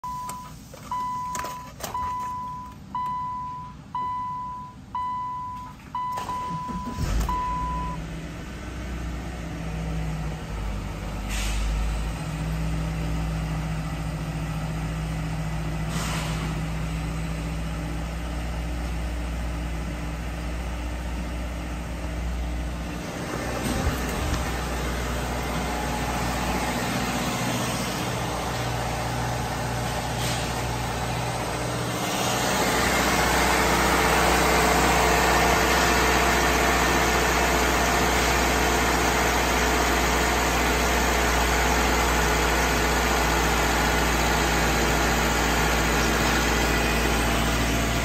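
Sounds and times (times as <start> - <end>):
dashboard warning chime beeps: 0.0 - 8.0
car engine starting and idling: 0.0 - 48.0.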